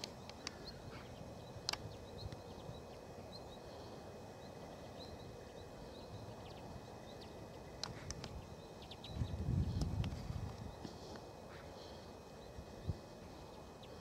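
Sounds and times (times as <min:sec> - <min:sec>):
sharp clicks: 0:00.0 - 0:00.6, 0:01.6 - 0:02.4, 0:07.8 - 0:08.4
birds twittering: 0:00.0 - 0:14.0.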